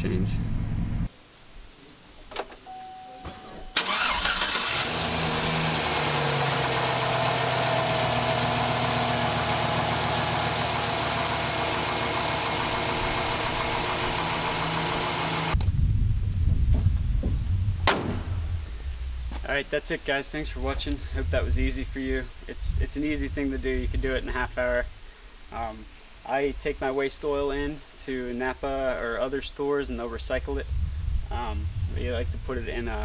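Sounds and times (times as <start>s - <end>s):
short beep: 2.7s - 3.8s
engine idling: 3.7s - 15.6s
starter cranking: 3.8s - 5.2s.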